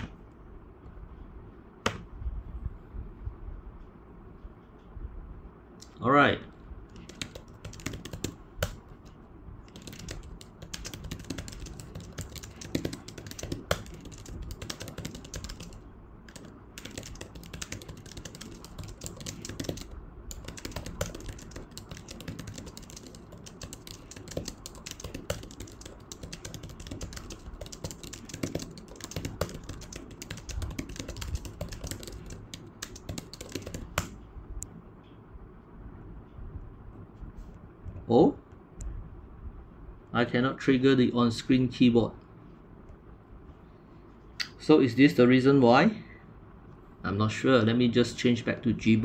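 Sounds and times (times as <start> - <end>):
keyboard typing clicks: 6.9 - 8.8, 9.7 - 34.7.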